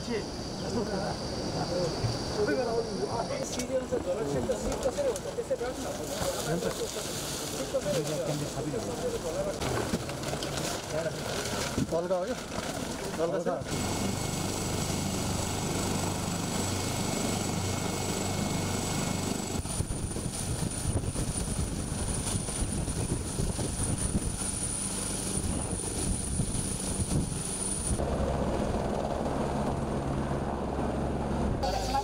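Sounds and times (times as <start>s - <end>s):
high turbine whine: 0.0s - 4.7s, 13.6s - 32.0s
helicopter rotor and engines: 0.0s - 32.0s.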